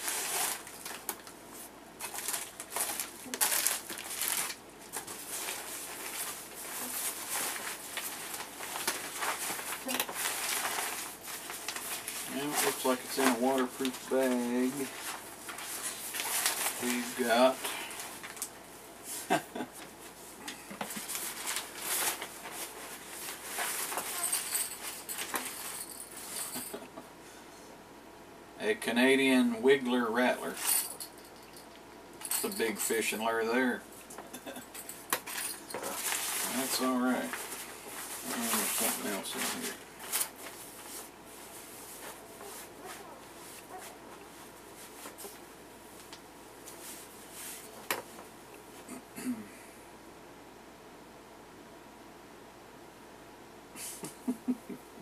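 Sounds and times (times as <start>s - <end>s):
plastic bag crinkling: 2.0s - 18.5s, 20.9s - 26.8s, 34.7s - 43.9s.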